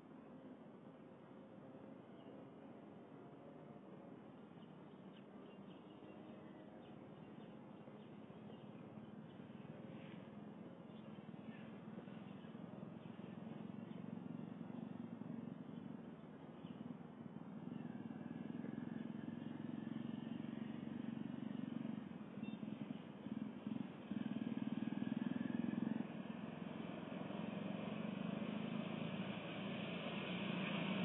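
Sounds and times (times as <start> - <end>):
diesel locomotive engine drone: 0.0 - 31.0.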